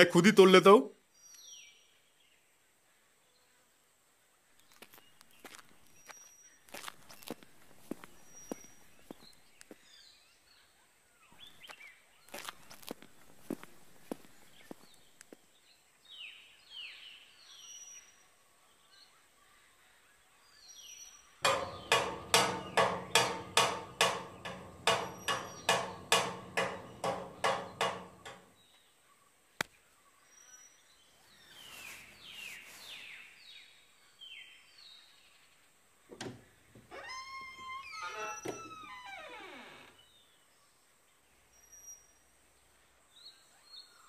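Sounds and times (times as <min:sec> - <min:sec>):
birds chirping: 0:20.9 - 0:28.8
hard blows on metal padlock: 0:21.5 - 0:28.4.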